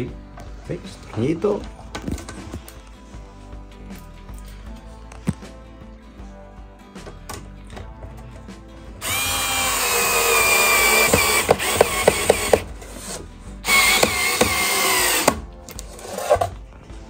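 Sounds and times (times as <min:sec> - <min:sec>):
electric screwdriver motor whining: 0:09.0 - 0:16.5.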